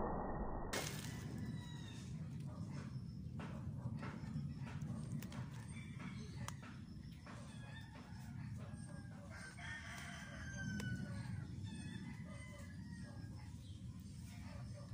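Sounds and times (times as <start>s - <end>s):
steady low rumble: 0.0s - 7.4s
rooster crowing faintly: 4.3s - 14.8s.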